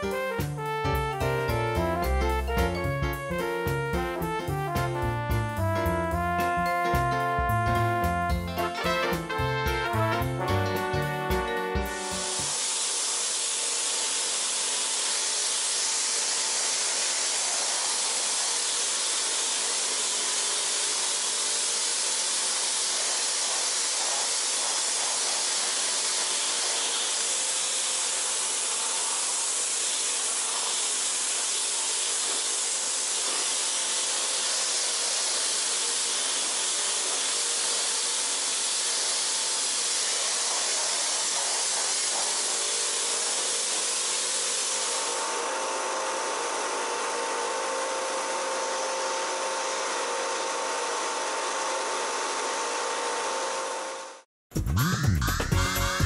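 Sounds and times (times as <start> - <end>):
pump motor hum: 0.0 - 4.4, 5.6 - 54.2
pressure washer jet hissing: 10.9 - 54.2.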